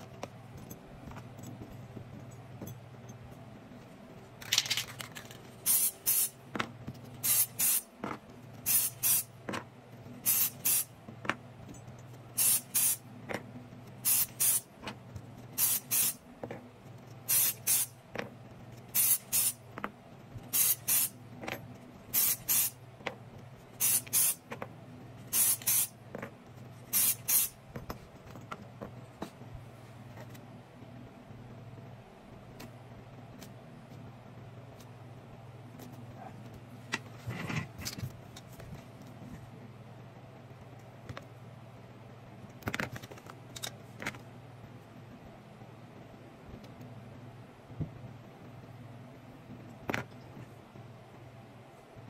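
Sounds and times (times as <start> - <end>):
steady low hum: 0.0 - 52.0
short hissing spray bursts: 5.7 - 6.4, 7.2 - 7.9, 8.7 - 9.3, 10.2 - 10.9, 12.4 - 13.0, 14.0 - 14.7, 15.6 - 16.2, 17.3 - 17.9, 19.0 - 19.6, 20.5 - 21.2, 22.1 - 22.8, 23.8 - 24.4, 25.3 - 25.9, 26.9 - 27.5.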